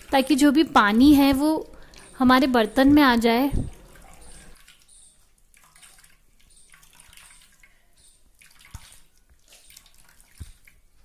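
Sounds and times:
liquid trickling and dripping: 0.0 - 11.0.

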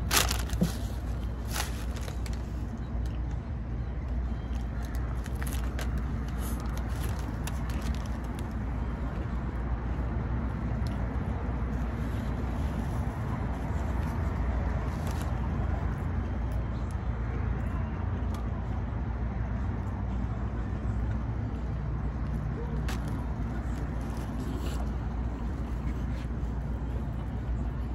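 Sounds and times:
crunchy taco being chewed: 0.0 - 3.4, 4.1 - 16.9, 22.2 - 27.9
road traffic rumble: 0.0 - 27.9.

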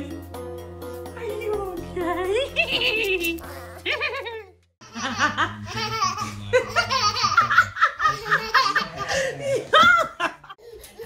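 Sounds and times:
people laughing: 3.8 - 11.0.

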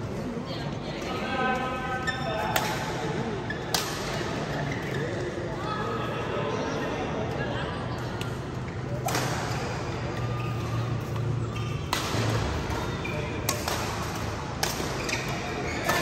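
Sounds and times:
racket striking shuttlecock: 11.8 - 16.0.

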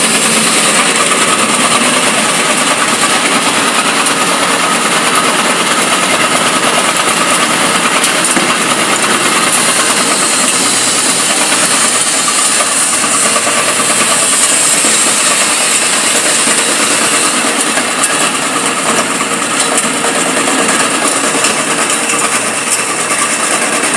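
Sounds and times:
granular material pouring hiss: 0.0 - 18.5
screw conveyor running: 0.0 - 23.9.

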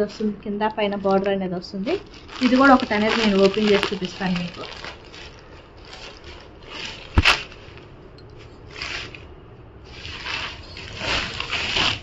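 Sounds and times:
silk cloth rustling: 0.0 - 12.0.

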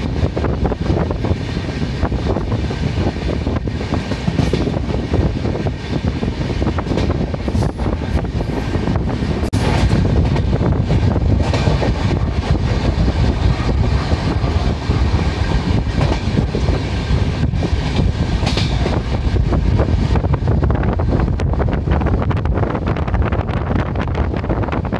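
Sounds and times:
rail joints clicking and knocking: 0.0 - 19.8
train wheels rumbling on rails: 0.0 - 24.9.

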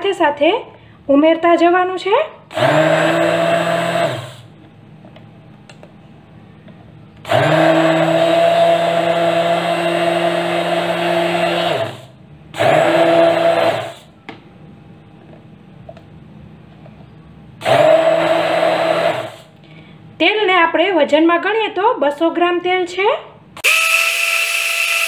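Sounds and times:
hand blender motor hum: 2.5 - 4.5, 7.3 - 14.1, 17.6 - 19.5, 23.6 - 25.0.

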